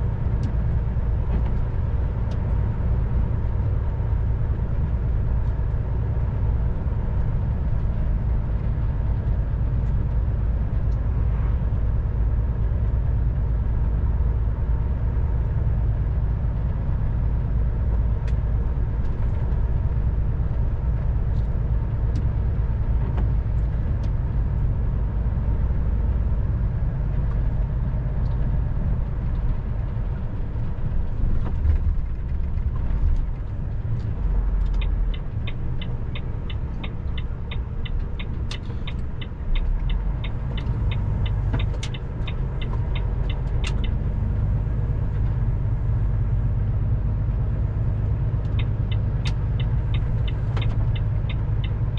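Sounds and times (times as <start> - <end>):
heavy vehicle engine drone: 0.0 - 51.9
turn signal ticking: 31.6 - 51.9.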